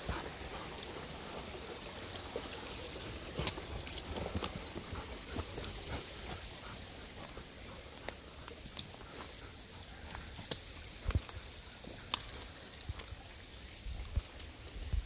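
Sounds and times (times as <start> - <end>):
footsteps on dry woodland path: 0.0 - 12.7.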